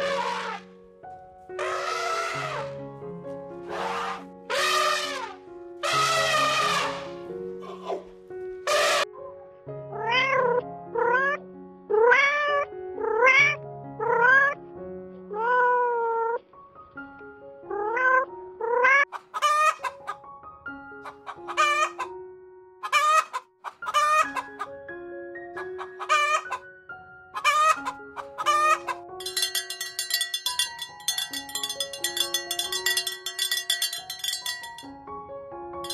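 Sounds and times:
background music with held notes: 0.0 - 35.9
cat meowing: 10.0 - 11.4, 12.0 - 14.6
chickens calling: 19.1 - 20.2, 21.0 - 22.1, 22.8 - 24.7, 25.6 - 26.7, 27.4 - 34.8.

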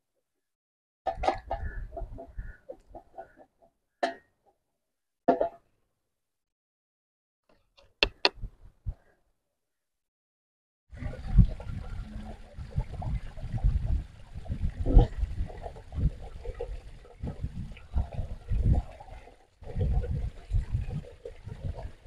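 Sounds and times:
water gushing from pipe: 11.0 - 22.0.

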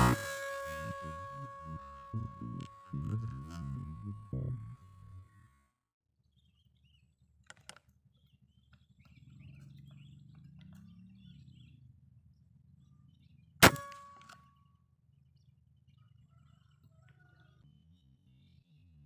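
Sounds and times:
small clicks: 7.4 - 8.0
air rifle shot: 13.6 - 14.0.

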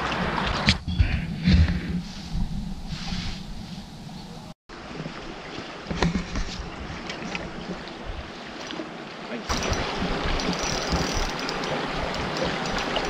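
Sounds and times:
rushing river water: 0.0 - 0.6, 4.7 - 13.0.

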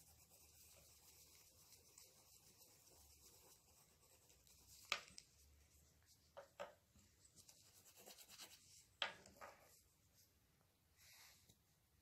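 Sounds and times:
pencil shading on paper: 0.0 - 4.9.

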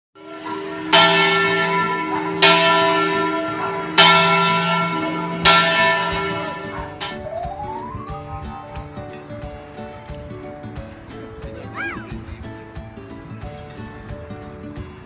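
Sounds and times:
large bell tolling: 0.2 - 9.7.

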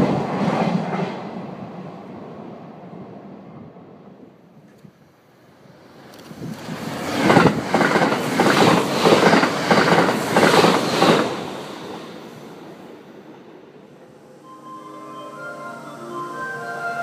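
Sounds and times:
train wheels clattering over joints: 7.1 - 12.0.

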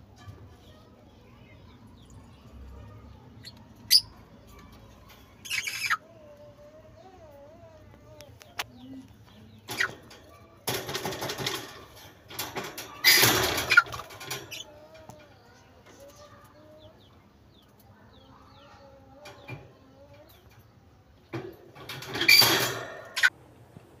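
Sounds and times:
bird chirps: 3.3 - 4.6, 5.4 - 6.0.

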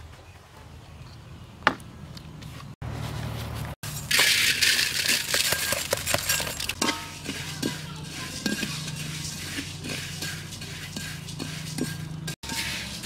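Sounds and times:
metal spatula scraping grains: 3.8 - 13.0
rice grains poured into metal wok: 3.9 - 13.0.

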